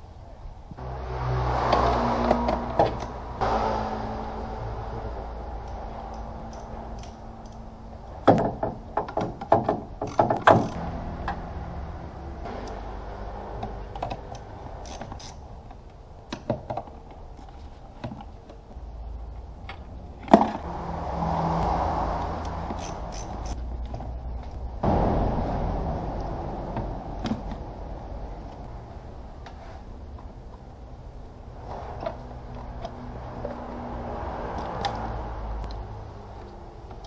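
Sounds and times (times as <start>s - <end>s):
clicks taps and knocks on parts: 8.2s - 11.4s.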